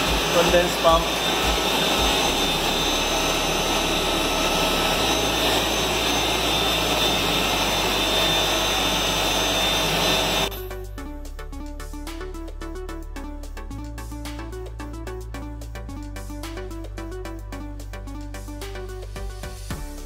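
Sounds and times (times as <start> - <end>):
background music: 0.0 - 6.5, 10.5 - 20.0
machinery humming and whining: 0.0 - 10.6.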